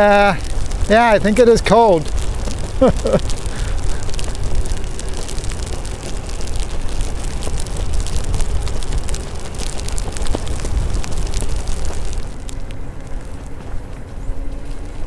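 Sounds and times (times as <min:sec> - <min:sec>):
raindrop ticks and wet spray: 0:00.0 - 0:15.0
wind rumble on microphone: 0:00.0 - 0:15.0.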